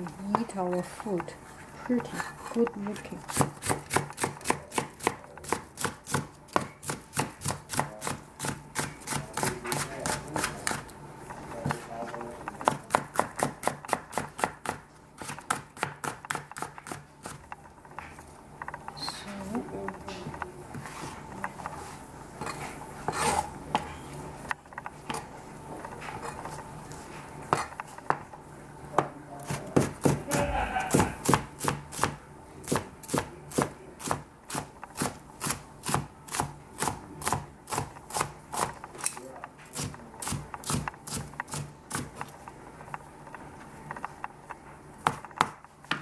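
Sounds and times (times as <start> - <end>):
cleaver chopping on plastic board: 3.3 - 10.8, 12.6 - 17.4.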